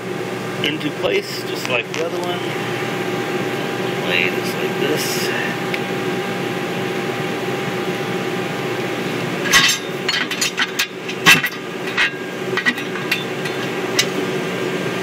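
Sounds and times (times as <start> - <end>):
machinery hum: 0.0 - 15.0
metal parts clinking: 9.4 - 14.1.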